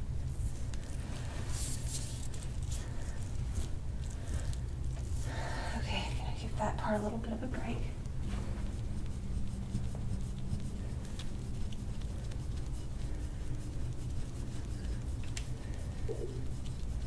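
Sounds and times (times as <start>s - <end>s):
steady low hum: 0.0s - 17.0s
tool scraping over skin: 6.3s - 17.0s.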